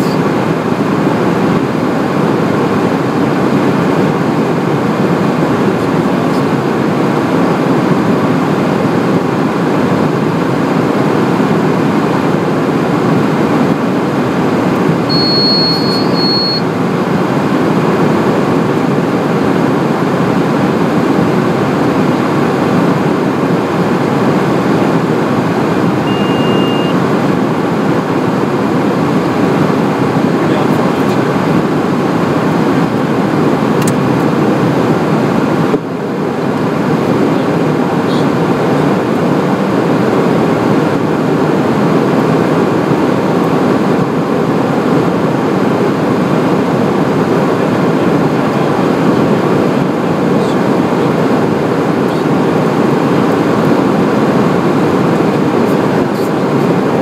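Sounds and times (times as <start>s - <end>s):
jet cabin airflow and engine noise: 0.0s - 57.0s
low beep: 15.1s - 16.7s, 26.0s - 27.0s
short high beeps: 15.1s - 16.7s, 26.0s - 27.0s.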